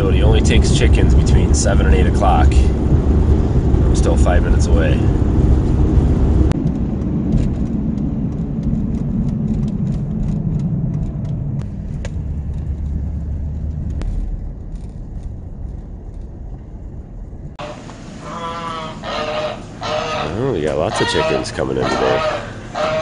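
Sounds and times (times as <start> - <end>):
truck engine and road rumble: 0.0 - 23.0
faint clicks and rattles: 6.5 - 17.6.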